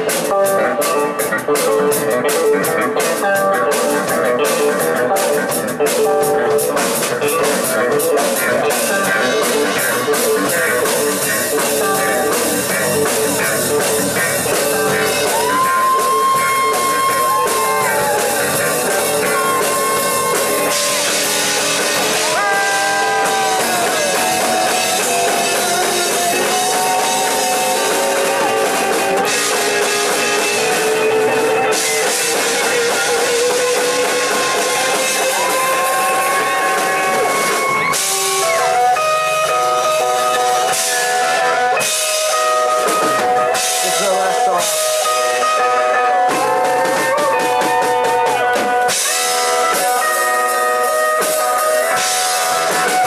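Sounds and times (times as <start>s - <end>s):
bass guitar: 0.0s - 53.0s
drum kit: 0.0s - 53.0s
electric guitar lead notes: 0.0s - 53.0s.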